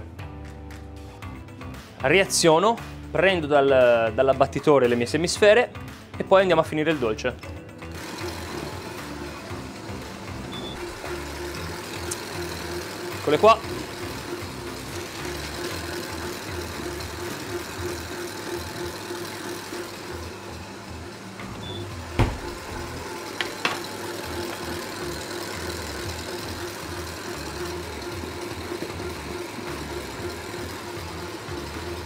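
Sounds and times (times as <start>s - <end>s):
stand mixer motor running: 7.8s - 32.0s.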